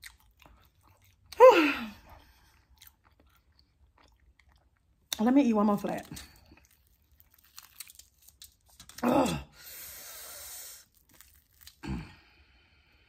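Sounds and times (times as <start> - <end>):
fried chicken crust crackling: 6.2 - 9.0, 10.8 - 11.8.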